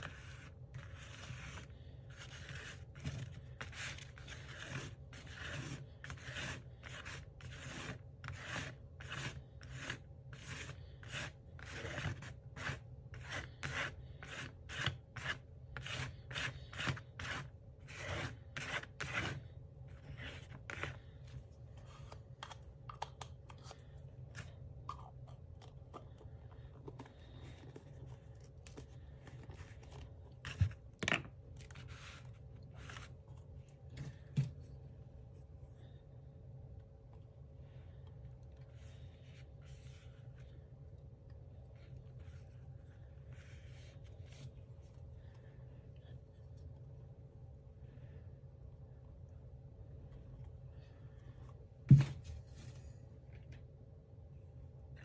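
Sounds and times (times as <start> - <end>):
paintbrush strokes on paper: 38.6 - 40.7, 41.7 - 45.0.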